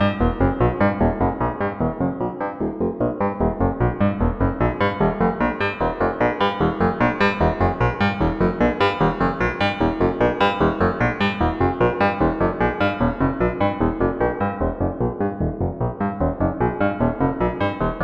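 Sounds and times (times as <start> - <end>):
minimalist electronic synth notes: 0.0 - 18.0.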